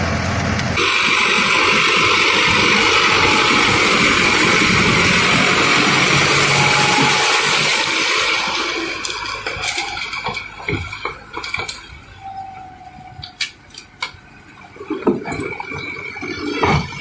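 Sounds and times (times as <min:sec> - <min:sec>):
rotavator churning through mud: 0:00.0 - 0:12.1
tractor engine hum: 0:00.0 - 0:17.0.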